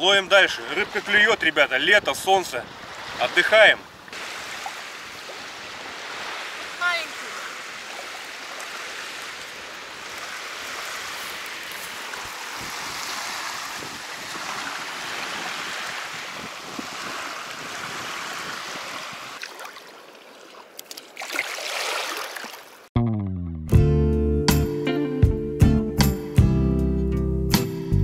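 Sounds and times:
small waves washing on shore: 0.0s - 22.9s
hand splashing in shallow water: 4.2s - 22.9s.

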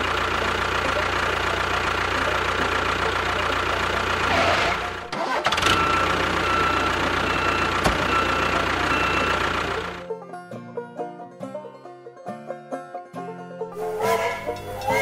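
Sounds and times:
road roller engine running: 0.0s - 10.3s, 13.6s - 15.0s.

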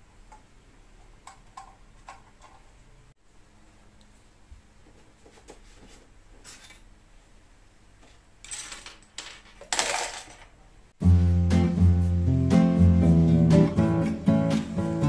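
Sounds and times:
objects scraping and clattering: 4.9s - 6.9s, 8.0s - 10.6s
small objects handled on a desk: 8.0s - 10.6s
acoustic guitar music: 11.0s - 15.0s.

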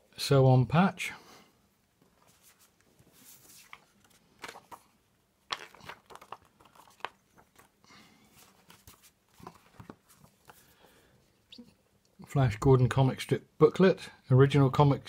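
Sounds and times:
paper rustling and crinkling: 2.2s - 10.8s.

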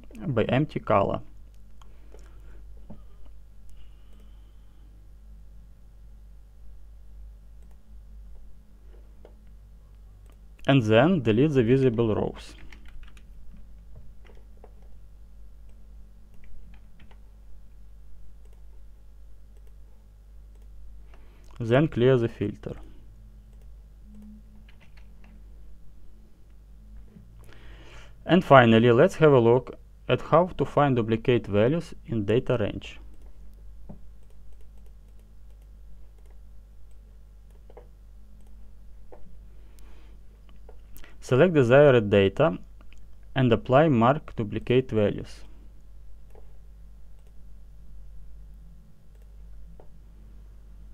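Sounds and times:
low electrical hum: 0.0s - 50.9s
computer mouse clicks: 7.6s - 7.8s, 18.4s - 18.8s, 19.5s - 19.8s, 20.5s - 20.7s, 23.5s - 25.4s, 33.1s - 39.3s, 47.1s - 47.4s, 49.1s - 49.9s.

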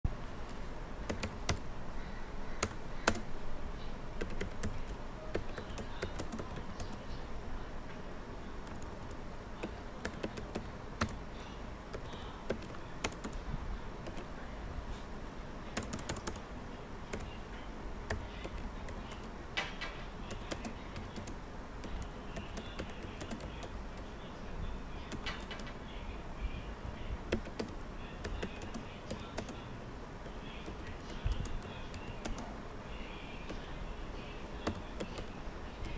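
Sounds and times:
keyboard keystrokes clicking: 1.1s - 1.6s, 2.6s - 3.3s, 4.2s - 7.0s, 8.7s - 11.2s, 15.7s - 16.4s, 27.3s - 29.6s, 34.6s - 35.9s.

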